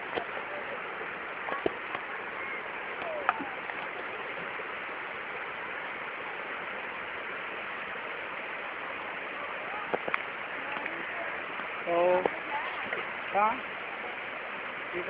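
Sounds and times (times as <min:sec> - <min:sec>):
faint voices: 0:00.0 - 0:15.0
river rushing over rocks: 0:00.0 - 0:15.0.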